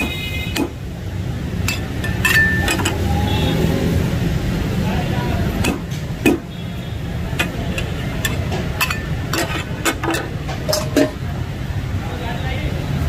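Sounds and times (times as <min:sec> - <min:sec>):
steel spatulas clanking on griddle: 0:01.6 - 0:03.1, 0:07.4 - 0:11.2.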